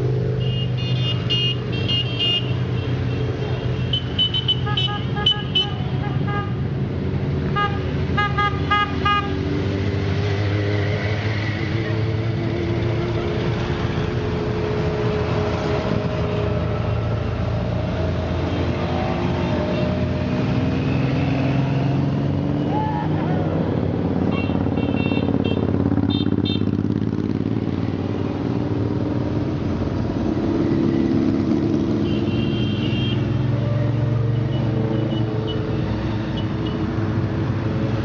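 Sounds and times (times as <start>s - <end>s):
motorcycles riding past: 9.3s - 38.0s.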